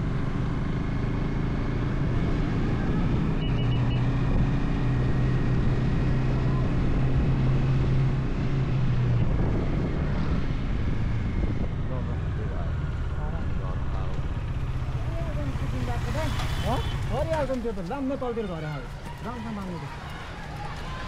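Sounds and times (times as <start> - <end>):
road and wind noise: 0.0 - 21.0
short high beeps: 3.4 - 4.0
motorcycle engine running: 10.6 - 21.0.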